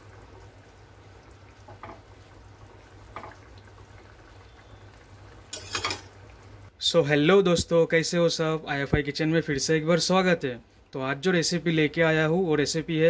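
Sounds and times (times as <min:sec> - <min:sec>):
gravy bubbling: 0:00.0 - 0:06.7.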